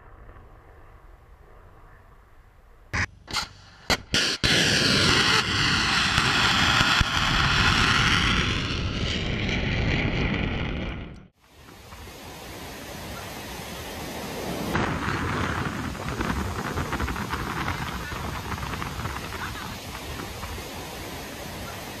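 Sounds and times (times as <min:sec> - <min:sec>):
faint wind noise: 0:00.0 - 0:22.0
rocket motor rushing: 0:03.0 - 0:11.3
sharp bangs: 0:03.0 - 0:11.3.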